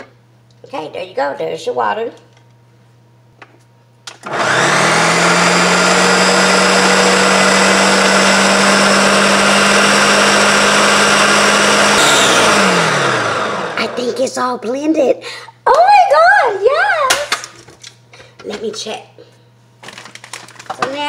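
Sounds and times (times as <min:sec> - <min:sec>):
blender motor whine: 0:04.1 - 0:14.1.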